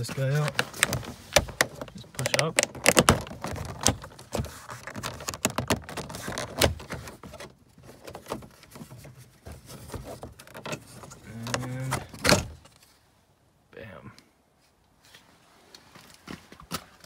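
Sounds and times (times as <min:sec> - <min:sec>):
plastic clicks and scrapes: 0:00.2 - 0:09.1.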